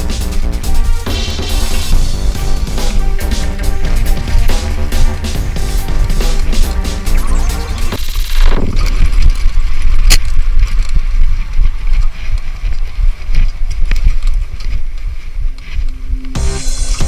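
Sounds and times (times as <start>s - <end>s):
bike ride rumble: 0.0s - 17.0s
wind: 0.0s - 17.0s.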